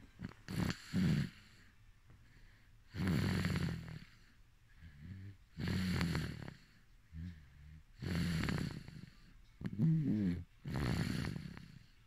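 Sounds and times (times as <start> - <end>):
baby snoring: 0.2 - 1.7, 2.9 - 4.2, 5.0 - 7.4, 8.0 - 12.0.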